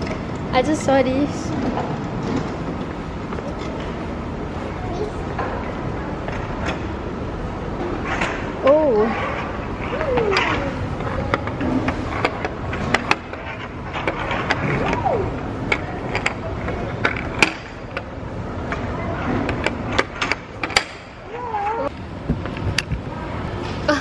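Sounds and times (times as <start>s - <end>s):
puck scraping through channels: 8.0s - 15.0s.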